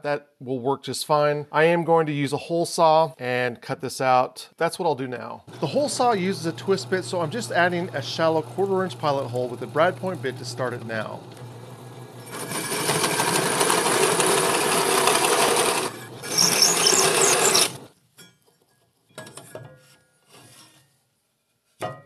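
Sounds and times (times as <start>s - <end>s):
drill press hole saw grinding wood: 5.5s - 17.9s.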